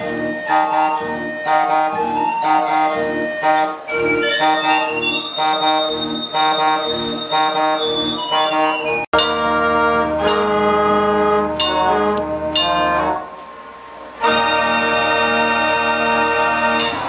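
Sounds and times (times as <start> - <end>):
mechanical music machine playing: 0.0 - 9.5
sharp percussive hits: 9.2 - 10.8, 11.6 - 13.7.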